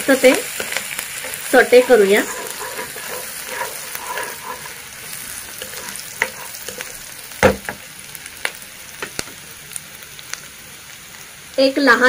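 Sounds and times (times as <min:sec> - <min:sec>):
spatula stirring in wok: 0:00.0 - 0:08.6
food sizzling in hot oil: 0:00.0 - 0:12.0
sharp knock: 0:07.4 - 0:07.8.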